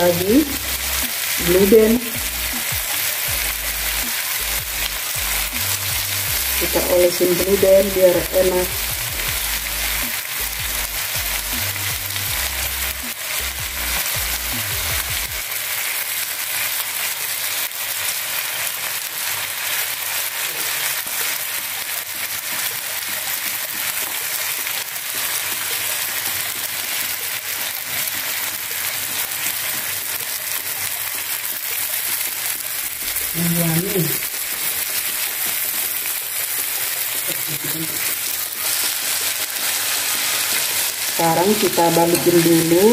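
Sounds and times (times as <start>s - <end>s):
fish sizzling in a grill pan: 0.0s - 42.9s.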